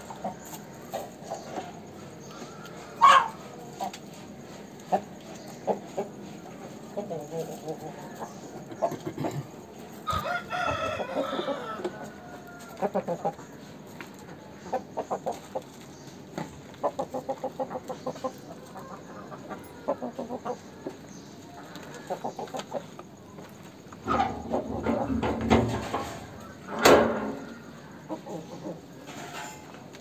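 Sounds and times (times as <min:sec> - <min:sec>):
chickens clucking: 0:00.0 - 0:30.0
chicken long call: 0:02.6 - 0:03.6, 0:10.0 - 0:13.3.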